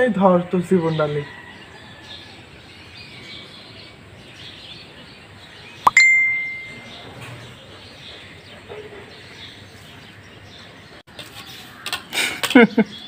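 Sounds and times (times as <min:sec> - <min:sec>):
bright ding: 0:05.9 - 0:07.0.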